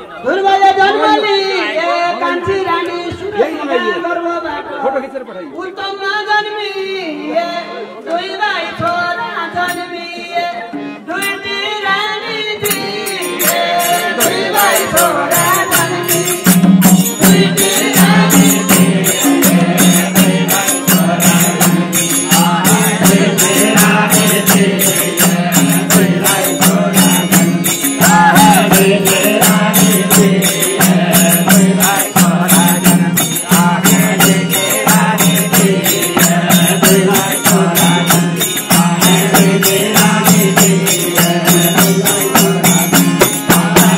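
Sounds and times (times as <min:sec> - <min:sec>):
harmonium: 0:00.0 - 0:43.9
men singing: 0:07.1 - 0:43.9
hand cymbals beating: 0:12.6 - 0:43.9
hand drum: 0:12.6 - 0:43.9.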